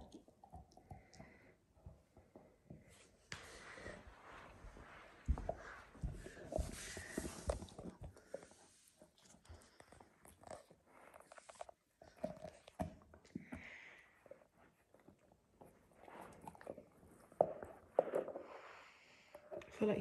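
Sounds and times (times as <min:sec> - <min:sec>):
dog gnawing a bone: 0:09.2 - 0:13.5, 0:14.9 - 0:18.4.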